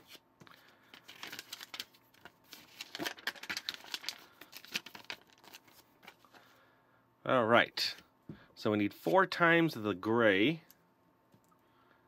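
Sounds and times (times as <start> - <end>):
paper page turning: 0.9 - 6.4.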